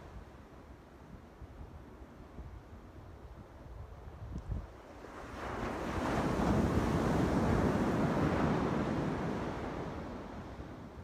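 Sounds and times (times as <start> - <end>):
ocean wave breaking on beach: 5.0 - 10.8.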